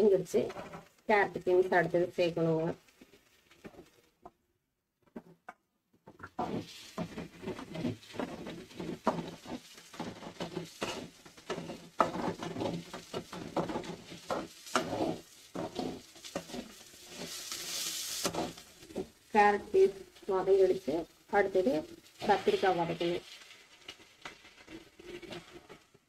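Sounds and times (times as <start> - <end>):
vegetables sizzling in oil: 0.0 - 3.9, 6.3 - 26.0
metal ladle scraping a pan: 6.3 - 26.0.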